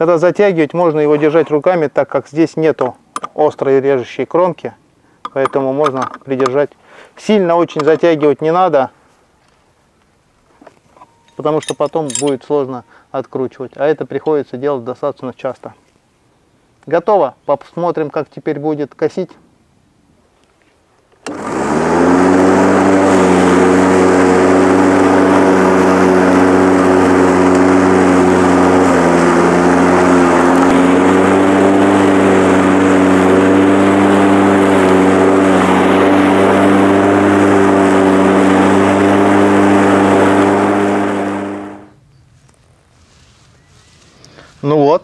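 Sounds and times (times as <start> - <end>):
electric lawn mower motor whine: 21.2 - 42.0.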